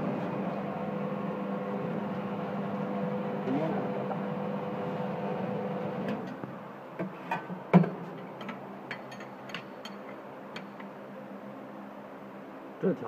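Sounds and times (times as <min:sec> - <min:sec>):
machine humming: 0:00.0 - 0:07.8.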